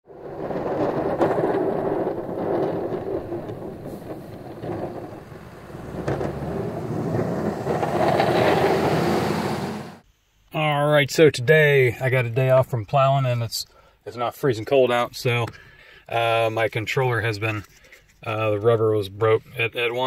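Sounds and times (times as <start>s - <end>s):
rumbling whoosh: 0.1s - 10.0s.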